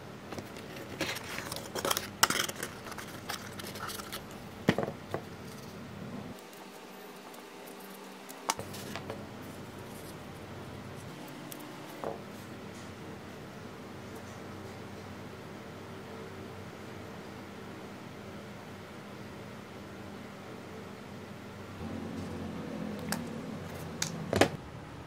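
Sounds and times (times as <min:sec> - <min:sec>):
cardboard rustling and scraping: 0:00.4 - 0:05.8.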